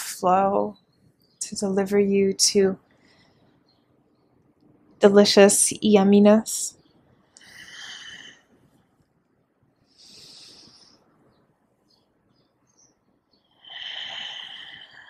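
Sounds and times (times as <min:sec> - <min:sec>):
woman breathing deeply: 0:07.3 - 0:08.7, 0:09.8 - 0:11.2, 0:13.6 - 0:15.0.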